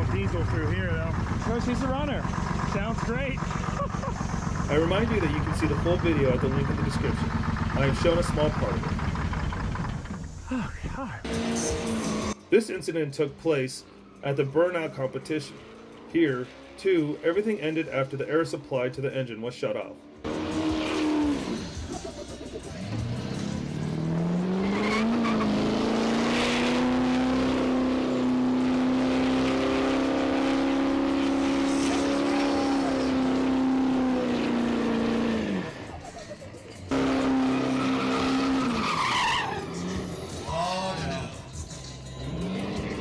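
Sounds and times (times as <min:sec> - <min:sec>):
diesel engine revving high: 0:00.0 - 0:10.4, 0:11.2 - 0:12.7, 0:20.1 - 0:40.6, 0:41.2 - 0:43.0.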